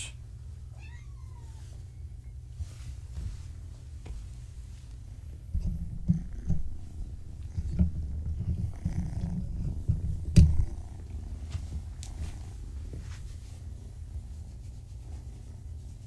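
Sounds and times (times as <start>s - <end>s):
cat purring: 5.6s - 16.0s.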